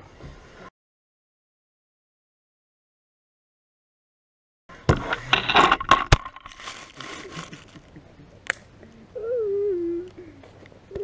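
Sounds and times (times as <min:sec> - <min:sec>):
camera clattering on ground: 0:04.9 - 0:07.9
faint rustling: 0:06.4 - 0:08.0.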